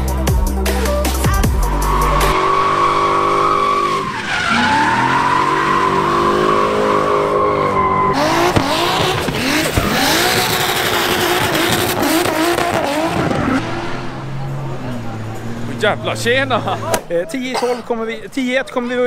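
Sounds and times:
tyre squeal: 0:01.7 - 0:12.0
engine at high revs: 0:02.2 - 0:16.9.

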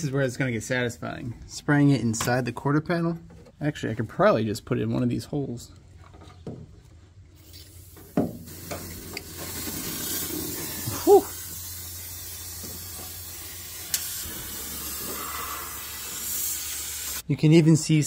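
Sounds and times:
aerosol spray hissing: 0:07.4 - 0:17.2.

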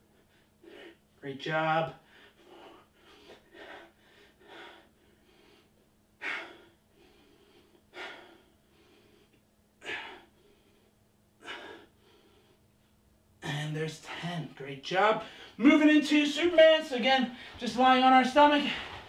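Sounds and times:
man breathing out hard: 0:02.0 - 0:12.6.

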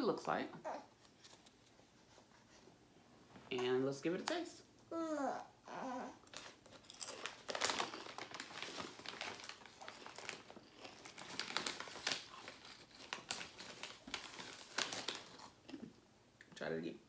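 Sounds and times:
plastic chip bag crinkling: 0:06.2 - 0:15.7.

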